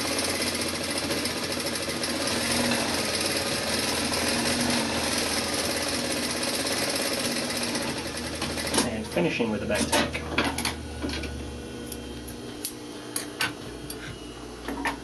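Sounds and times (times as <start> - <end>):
sewing machine running: 0.0 - 9.9.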